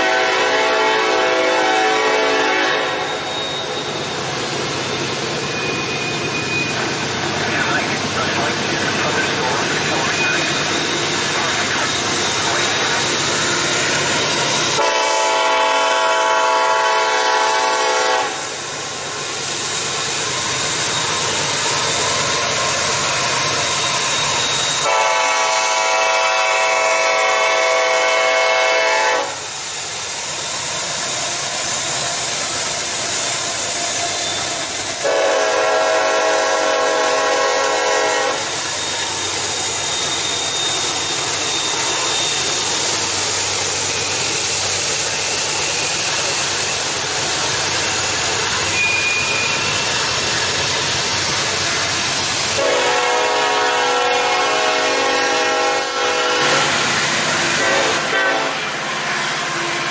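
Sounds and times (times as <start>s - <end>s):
locomotive air horn blasts: 0.0s - 3.5s, 14.7s - 18.4s, 24.8s - 29.4s, 35.0s - 38.5s, 52.6s - 56.8s, 57.6s - 58.6s
passing train noise: 0.0s - 59.9s.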